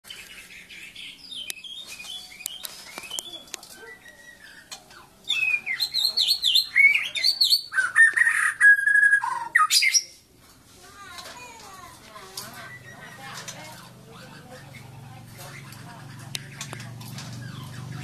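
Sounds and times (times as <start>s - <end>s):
bird singing whistles: 5.3s - 10.1s.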